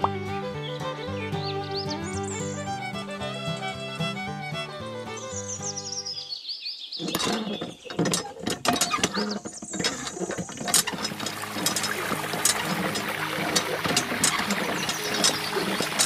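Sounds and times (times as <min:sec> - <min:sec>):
background music: 0:00.0 - 0:06.1, 0:10.9 - 0:16.0
hand pump lever clicking: 0:07.0 - 0:16.0
water splashing from pump: 0:07.0 - 0:16.0.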